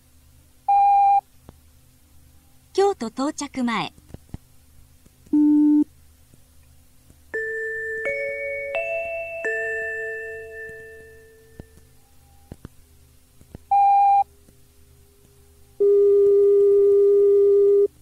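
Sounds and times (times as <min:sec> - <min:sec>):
bell-like chime: 0:07.4 - 0:11.5.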